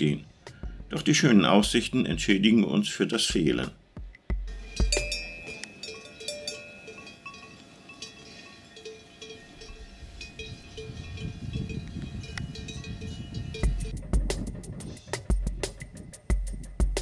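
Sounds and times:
cowbells clanking: 4.5s - 14.0s.

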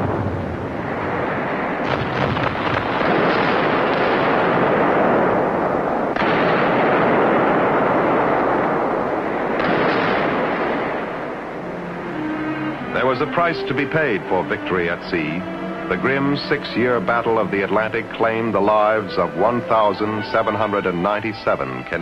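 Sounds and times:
explosions: 0.0s - 11.6s
gunfire: 1.8s - 11.4s.

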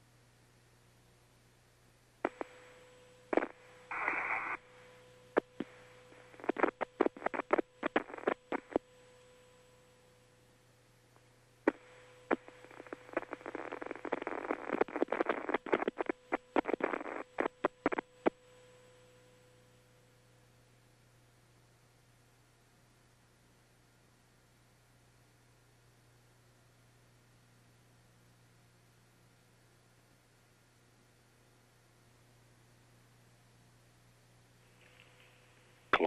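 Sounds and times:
faint steady hum: 0.0s - 36.0s
sharp radio clicks: 2.2s - 2.6s, 3.3s - 4.7s, 5.4s - 8.9s, 11.7s - 18.4s
crackling radio static: 2.2s - 9.1s, 11.6s - 18.8s.

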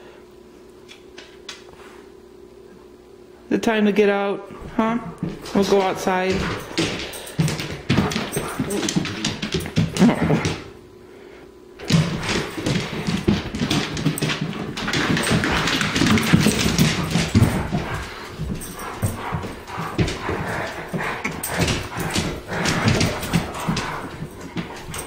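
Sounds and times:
dog claws clicking on hard floor: 5.2s - 10.7s, 11.8s - 25.0s.

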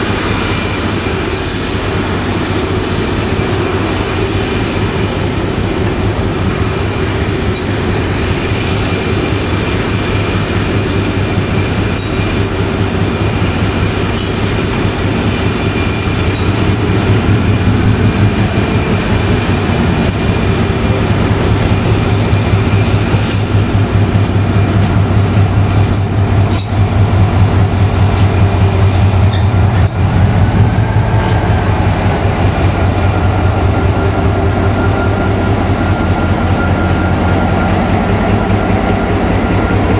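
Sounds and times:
diesel locomotive engine running: 0.0s - 39.9s
wagons rolling on rails: 5.7s - 32.4s
wheel squeal: 5.7s - 39.9s.

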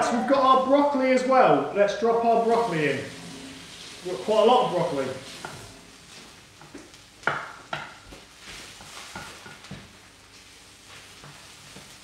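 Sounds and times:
faint sizzle of frying: 0.0s - 12.0s
wooden spoon scraping a pan: 2.4s - 12.0s.

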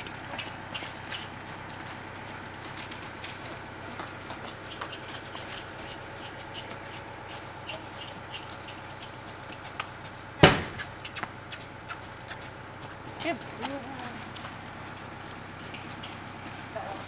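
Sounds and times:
hoofbeats on sand: 0.0s - 17.0s
loud thump: 10.4s - 10.8s.

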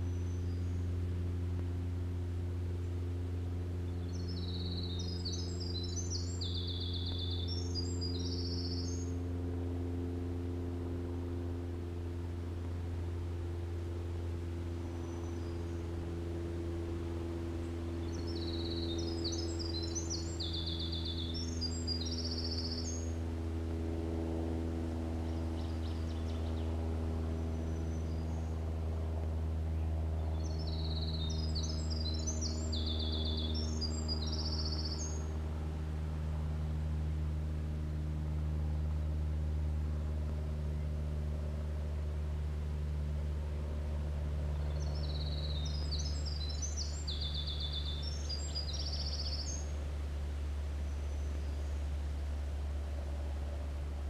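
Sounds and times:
steady low drone: 0.0s - 54.0s
wren singing high trills: 3.9s - 9.2s, 18.0s - 23.2s, 30.3s - 35.3s, 44.5s - 49.7s.

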